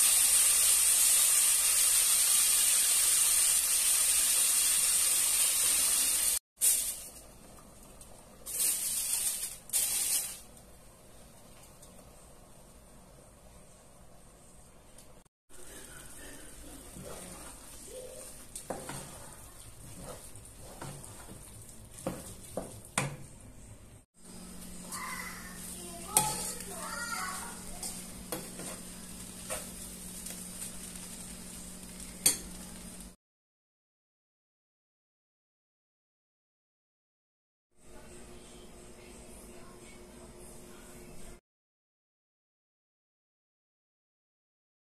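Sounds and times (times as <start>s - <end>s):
steady sizzle: 0.0s - 13.8s, 15.5s - 33.2s
aluminium foil crinkling: 6.6s - 7.3s, 8.0s - 10.6s.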